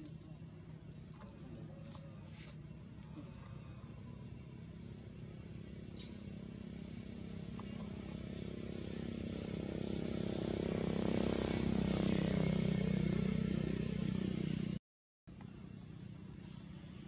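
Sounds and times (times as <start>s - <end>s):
vehicle engine running: 0.0s - 17.0s.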